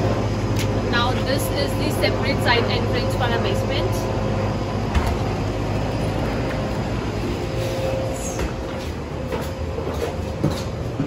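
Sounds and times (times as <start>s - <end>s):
machinery hum: 0.0s - 11.0s.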